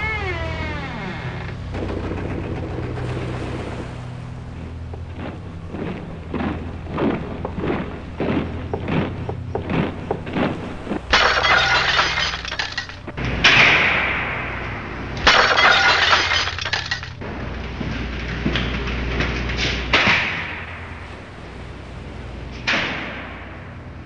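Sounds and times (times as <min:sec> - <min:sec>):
low steady hum: 0:00.0 - 0:24.0
loud shattering crashes: 0:11.1 - 0:14.4, 0:15.2 - 0:17.2.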